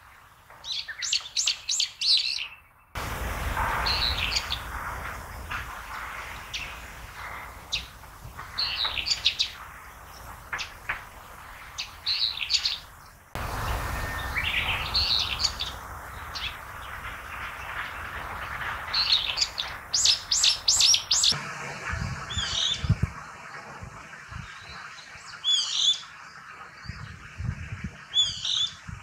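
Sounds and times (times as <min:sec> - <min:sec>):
bird harsh calls: 0:03.8 - 0:21.4.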